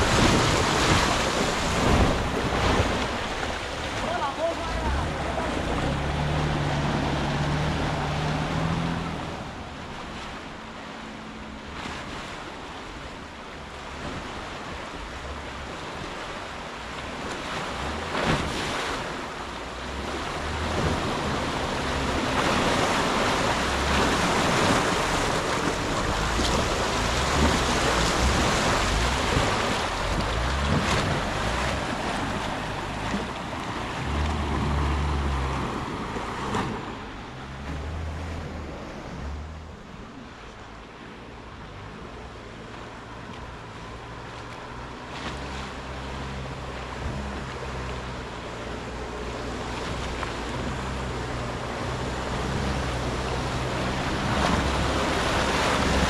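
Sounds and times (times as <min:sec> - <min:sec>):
steady rushing noise: 0:00.0 - 0:44.8.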